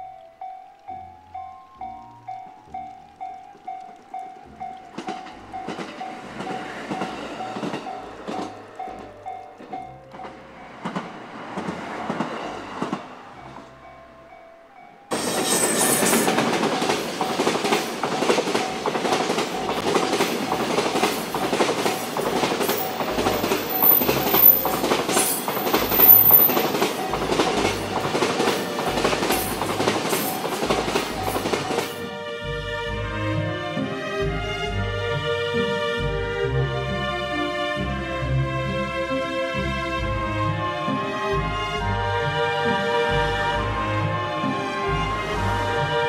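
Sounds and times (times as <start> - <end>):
level-crossing warning bell: 0.0 - 32.3
freight train wagons rumbling: 0.0 - 46.0.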